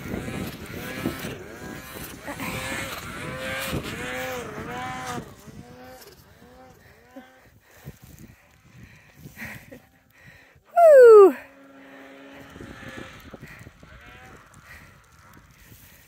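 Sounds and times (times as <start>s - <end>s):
snowmobile engine revving: 0.0s - 8.1s, 11.5s - 16.0s
snowmobile passing close: 0.0s - 16.0s.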